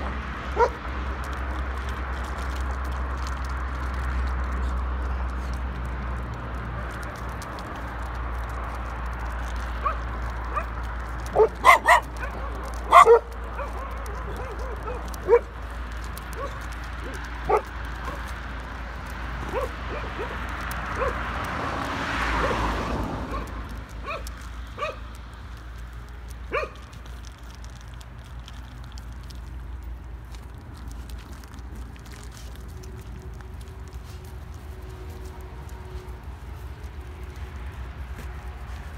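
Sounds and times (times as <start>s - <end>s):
car passing: 0.0s - 38.9s
dog barking: 0.5s - 0.8s, 9.8s - 10.7s, 11.3s - 15.5s, 16.3s - 16.6s, 17.4s - 18.2s, 19.5s - 21.2s, 23.3s - 25.0s, 26.5s - 26.8s.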